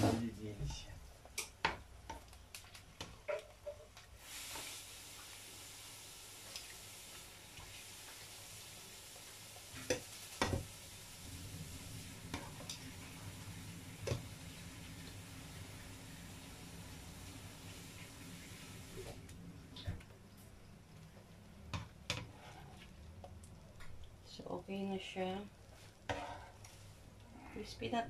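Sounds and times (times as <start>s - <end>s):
fish sizzling in oil: 1.3s - 19.3s.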